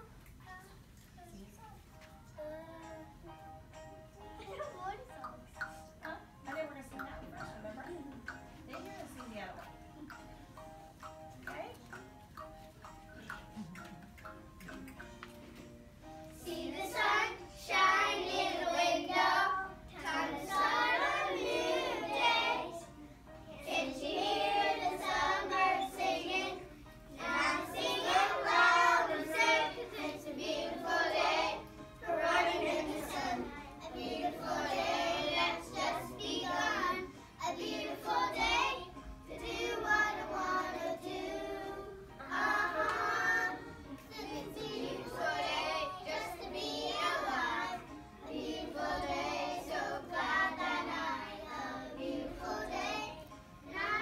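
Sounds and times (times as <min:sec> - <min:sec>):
children singing together: 0:16.3 - 0:54.0.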